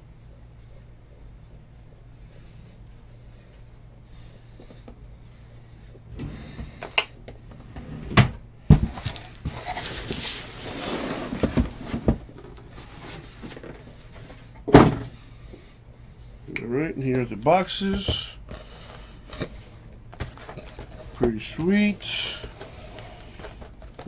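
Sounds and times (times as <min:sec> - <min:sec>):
cardboard boxes knocking and thumping: 0:08.7 - 0:10.3, 0:11.2 - 0:13.8, 0:14.7 - 0:15.1
cardboard rustling: 0:08.8 - 0:14.4, 0:20.1 - 0:24.0.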